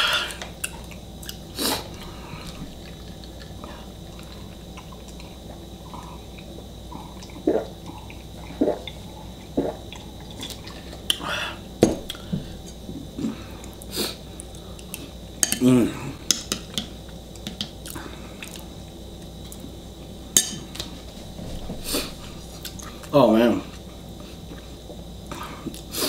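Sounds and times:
gulping drink: 0.7 - 11.3
throaty vocal sound: 15.6 - 16.2.

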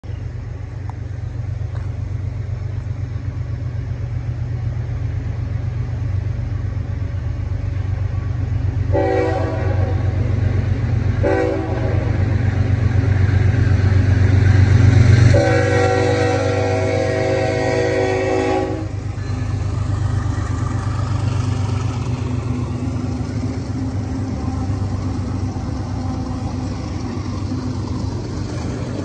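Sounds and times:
low train rumble: 0.0 - 29.0
locomotive horn blasts: 8.9 - 10.2, 11.2 - 12.2, 15.3 - 19.6.

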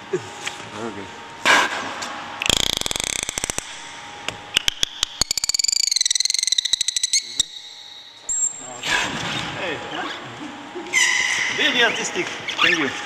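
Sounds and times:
dolphin clicks: 2.4 - 3.7, 4.5 - 8.0
dolphin whistle: 4.6 - 8.6.

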